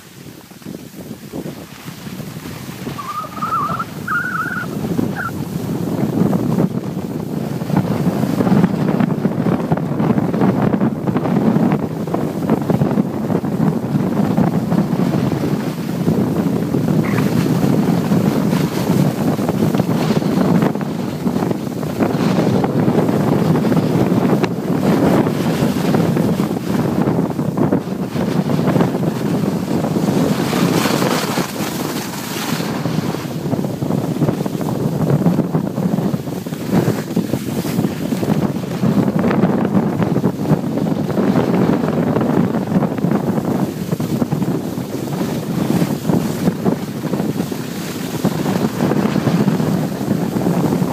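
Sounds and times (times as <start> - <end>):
skis sliding on packed snow: 0.0 - 8.7, 29.4 - 39.1, 39.8 - 50.9
wind buffeting microphone: 0.0 - 50.9.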